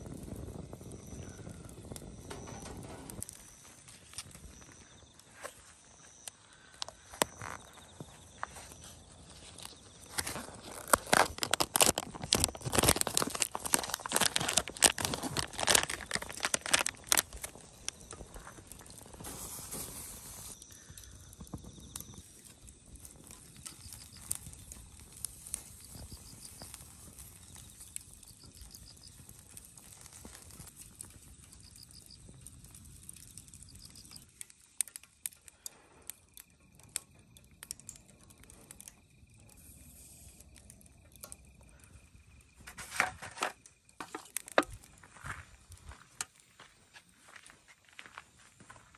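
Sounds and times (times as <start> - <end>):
crackling clicks of grilling corn: 0.0 - 48.9
foil tray crinkling: 10.1 - 18.0.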